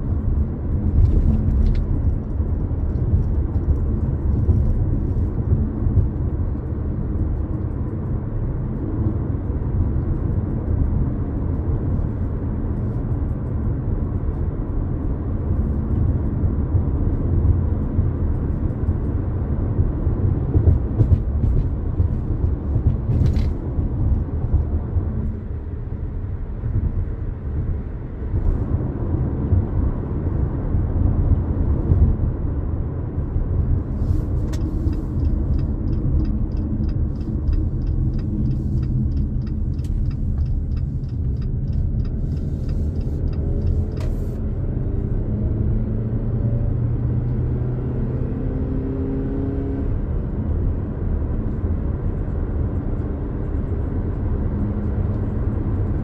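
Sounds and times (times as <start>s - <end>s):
road and engine rumble in car: 0.0s - 56.0s
turn signal ticking: 33.5s - 45.2s.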